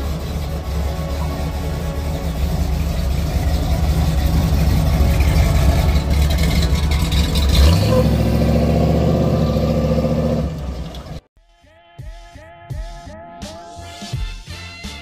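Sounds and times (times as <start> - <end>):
jeep engine driving off: 0.0 - 11.2.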